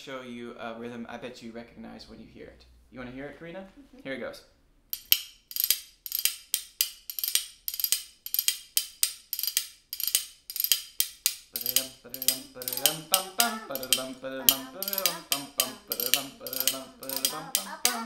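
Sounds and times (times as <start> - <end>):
spoons clacking rhythm: 5.0 - 18.0
person singing wordless tune: 11.6 - 18.0.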